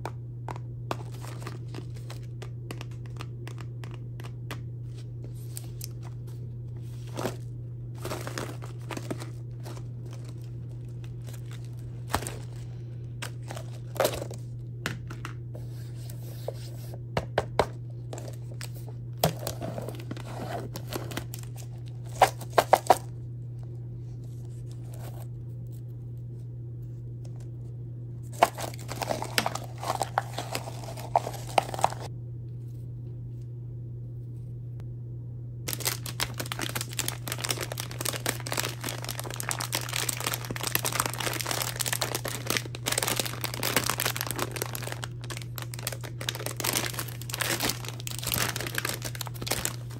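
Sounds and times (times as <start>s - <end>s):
steady low hum: 0.0s - 49.9s
cookies rattling in plastic cup: 0.9s - 4.6s, 6.9s - 14.5s, 18.2s - 23.1s, 28.3s - 32.1s, 35.7s - 49.9s
foil lid crackling: 0.9s - 4.6s, 5.3s - 14.5s, 18.1s - 23.1s, 28.3s - 32.1s, 35.7s - 49.9s
plastic bag crinkling: 0.9s - 14.5s, 18.1s - 23.1s, 28.2s - 32.1s, 35.7s - 49.9s.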